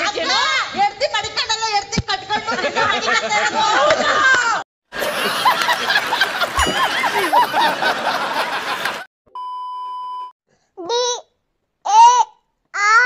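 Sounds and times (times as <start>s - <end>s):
people laughing heartily: 2.5s - 9.1s
test-tone beep: 9.4s - 10.3s.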